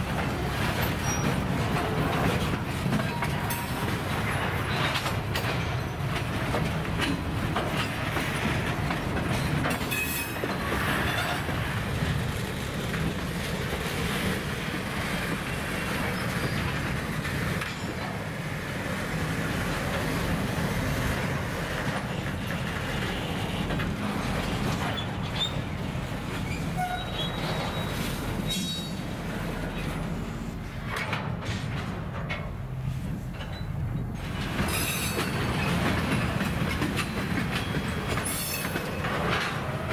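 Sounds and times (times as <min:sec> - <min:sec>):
freight train wheels rumbling: 0:00.0 - 0:39.9
high wheel squeals: 0:00.9 - 0:01.5, 0:26.4 - 0:29.0.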